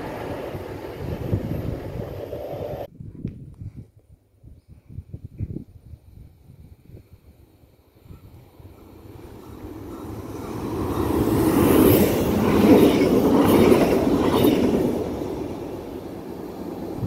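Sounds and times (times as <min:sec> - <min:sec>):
train passing at speed: 0:00.0 - 0:02.9, 0:08.4 - 0:17.0.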